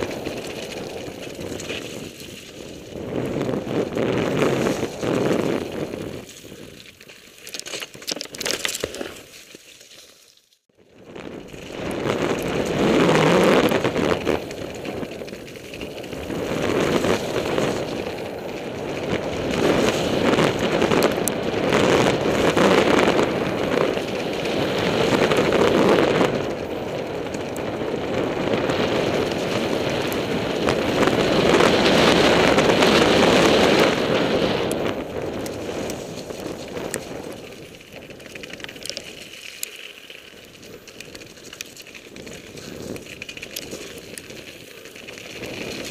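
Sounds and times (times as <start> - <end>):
wind on microphone: 0.0 - 6.9, 10.9 - 39.3, 40.3 - 45.9
bike rattles and clicks: 0.0 - 45.9
tyres on loose gravel: 0.0 - 45.9.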